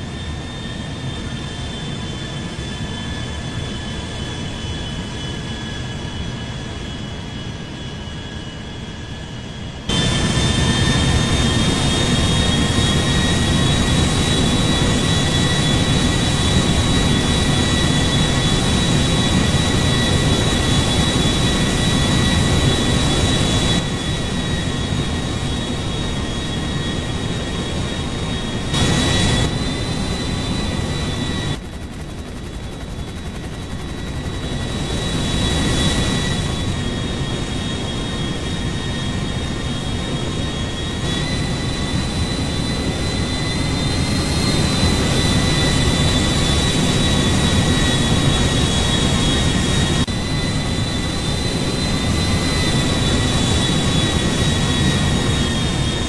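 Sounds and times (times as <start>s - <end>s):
turboprop engines running: 0.0s - 56.0s.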